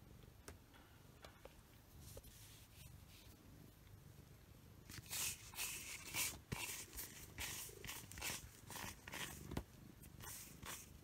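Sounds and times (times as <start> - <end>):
rubber glove brushing cat fur: 4.9 - 11.0.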